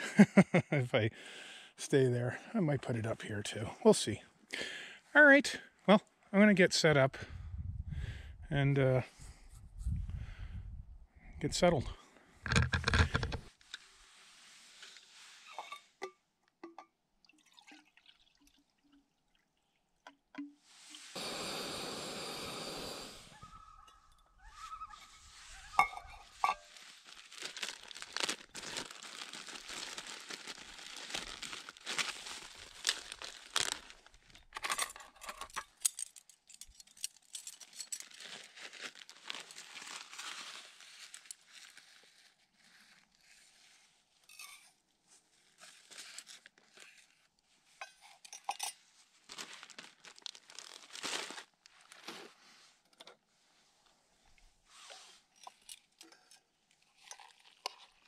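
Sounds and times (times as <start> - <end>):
camp gear clicks: 12.4 - 13.9
plastic bags crinkling: 25.3 - 34.5, 37.1 - 42.0, 49.1 - 52.3, 56.9 - 58.0.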